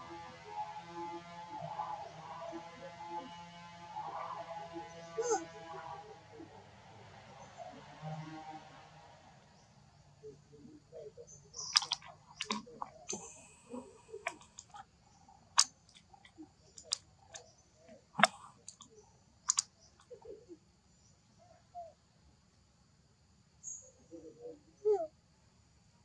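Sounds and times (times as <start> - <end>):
monkey chewing seeds: 11.6 - 14.8, 18.2 - 18.9.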